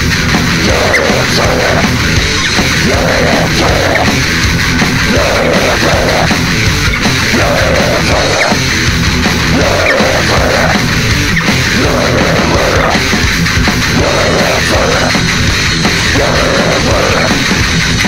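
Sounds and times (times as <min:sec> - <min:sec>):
heavy metal song: 0:00.0 - 0:18.0.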